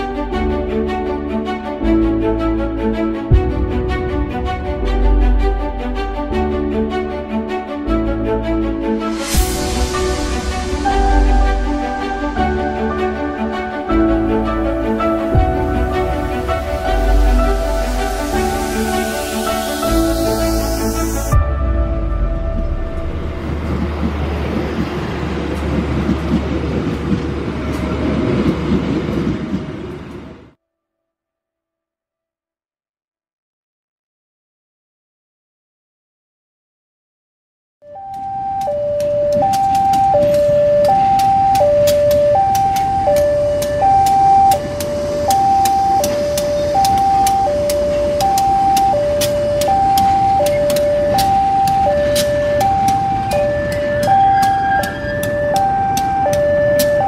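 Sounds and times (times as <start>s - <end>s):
diesel locomotive engine droning: 0.0s - 30.6s, 38.0s - 57.0s
wheels rumbling on rails: 0.4s - 30.6s, 38.0s - 57.0s
two-tone crossing alarm: 16.3s - 21.4s, 37.8s - 57.0s.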